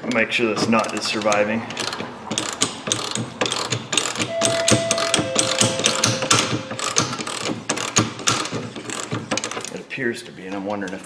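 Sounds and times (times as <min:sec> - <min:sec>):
metallic clicks and knocks: 0:00.0 - 0:09.8
ringing metal tone: 0:04.3 - 0:07.2.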